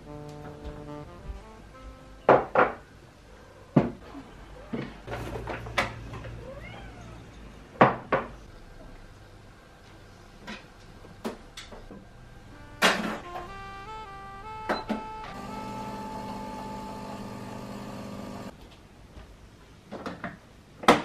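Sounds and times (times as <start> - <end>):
cat meowing: 6.4 - 7.4.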